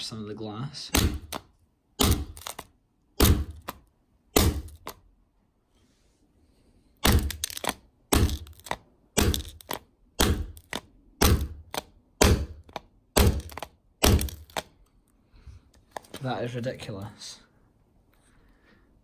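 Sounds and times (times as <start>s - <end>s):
hammer striking glass: 0.9s - 1.4s, 2.0s - 2.5s, 3.2s - 3.7s, 4.3s - 4.9s, 7.0s - 7.5s, 8.1s - 9.6s, 10.2s - 10.6s, 11.2s - 11.6s, 12.2s - 14.6s.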